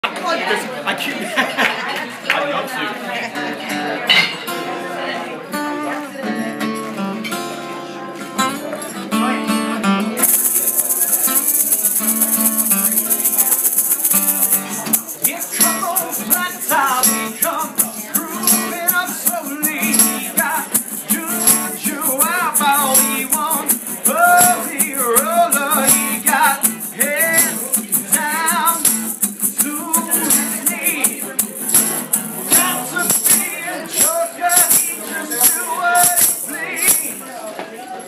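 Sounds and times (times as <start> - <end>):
acoustic guitar strumming: 3.6 - 37.3
shaker beat: 10.2 - 37.2
person singing: 14.3 - 37.2.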